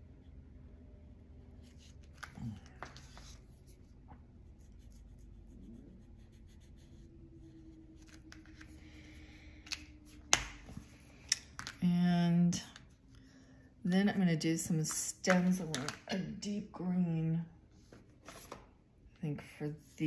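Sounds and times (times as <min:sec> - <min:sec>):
low room hum: 0:00.0 - 0:20.0
marker scratching on paper: 0:02.8 - 0:08.8.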